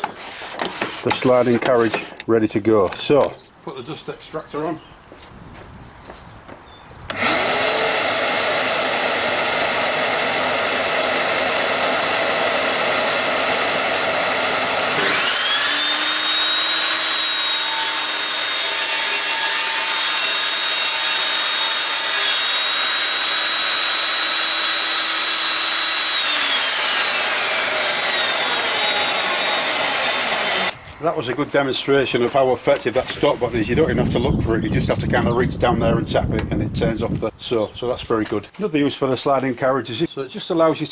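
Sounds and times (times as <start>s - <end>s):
shop vac running: 7.1s - 30.8s
table saw motor whine: 7.1s - 30.8s.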